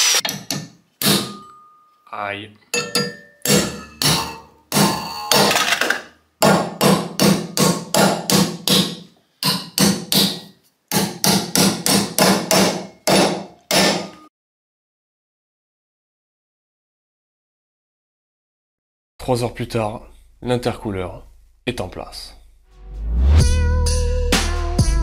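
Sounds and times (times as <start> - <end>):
hammer on metal bar: 0.3 - 1.8, 2.8 - 5.1, 6.4 - 14.3.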